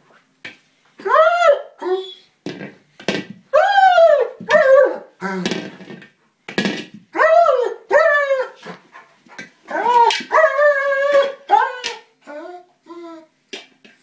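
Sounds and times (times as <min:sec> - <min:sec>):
dog whining yelps: 0:01.0 - 0:02.3, 0:03.5 - 0:05.2, 0:09.7 - 0:13.3.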